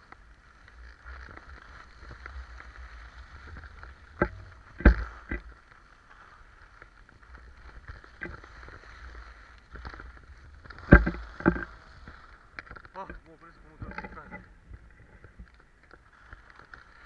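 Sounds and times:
wind rumble on microphone: 0:00.0 - 0:05.6
skis scraping on snow: 0:00.0 - 0:17.0.

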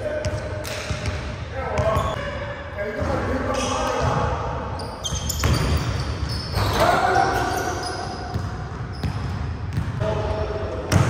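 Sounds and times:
ball bouncing on gym floor: 0:08.3 - 0:10.0
basketball hitting rim: 0:08.3 - 0:10.0.

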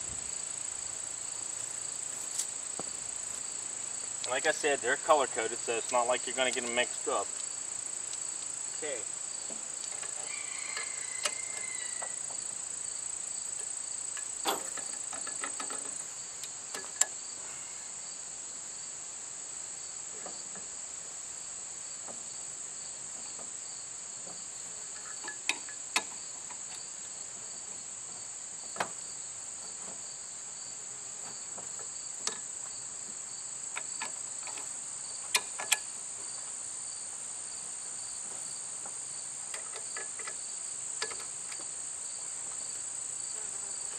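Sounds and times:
high-pitched insect chorus: 0:00.0 - 0:43.9
metallic clicks of hose couplers: 0:13.6 - 0:17.2, 0:24.9 - 0:26.8, 0:32.2 - 0:32.5, 0:35.3 - 0:35.9, 0:39.5 - 0:40.4, 0:41.0 - 0:41.7.

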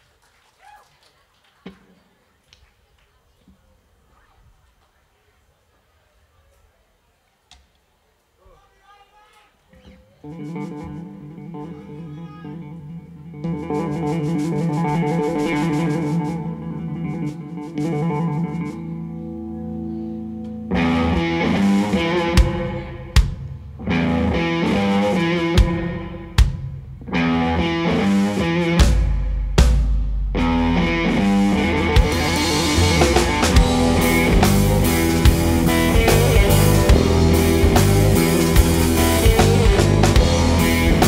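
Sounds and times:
rock band with drum kit: 0:09.8 - 0:41.0
electric guitar picking: 0:10.2 - 0:41.0.

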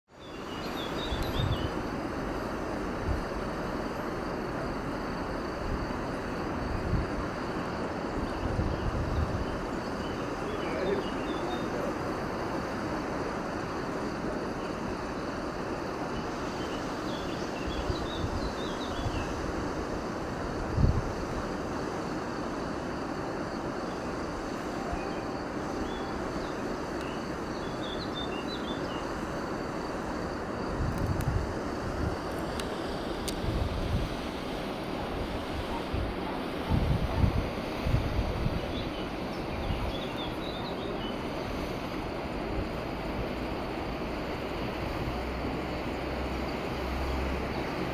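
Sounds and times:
small birds chirping: 0:00.1 - 0:01.8, 0:08.2 - 0:11.9, 0:24.9 - 0:29.2, 0:38.6 - 0:41.3
low outdoor background noise: 0:00.1 - 0:47.9
wind on microphone: 0:00.4 - 0:47.9
low rumbling gusts: 0:00.8 - 0:28.0, 0:29.3 - 0:40.2.

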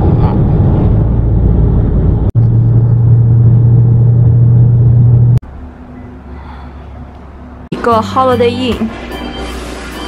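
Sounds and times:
car road and engine drone: 0:00.0 - 0:07.7.

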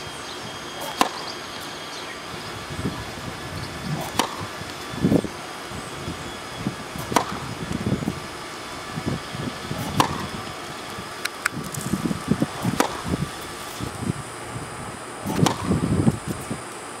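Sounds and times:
tennis racket hitting ball: 0:00.8 - 0:01.3, 0:04.0 - 0:04.5, 0:07.0 - 0:07.5, 0:09.8 - 0:10.3, 0:12.5 - 0:13.7, 0:15.2 - 0:15.7.

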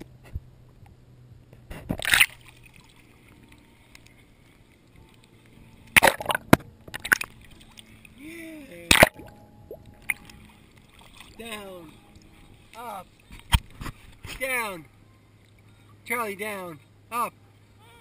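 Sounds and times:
water splashing in paddling pool: 0:02.0 - 0:14.6.

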